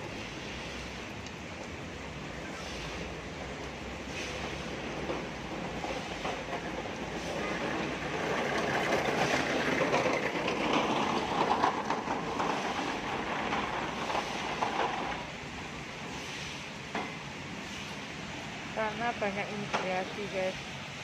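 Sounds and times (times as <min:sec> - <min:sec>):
heavy rain on paving: 0:00.0 - 0:21.0
trolley rattling over bricks: 0:04.9 - 0:15.4.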